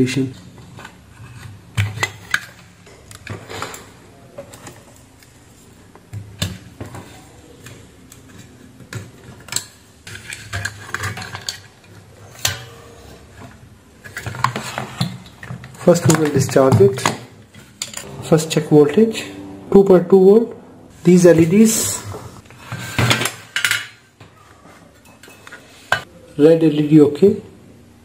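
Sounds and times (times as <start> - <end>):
clicks and clatter of handled parts: 6.1 - 12.7.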